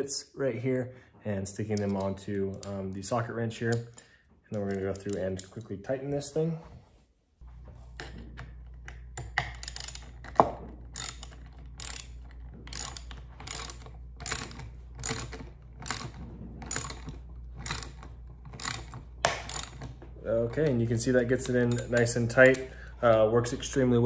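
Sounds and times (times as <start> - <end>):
ratchet wrench clicking: 4.6 - 5.7, 9.5 - 10.3, 10.9 - 18.0, 18.6 - 19.8, 21.4 - 22.7.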